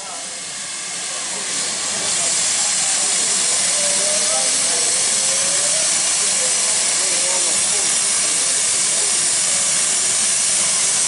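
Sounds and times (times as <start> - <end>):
steam hissing from locomotive: 0.0 - 11.0.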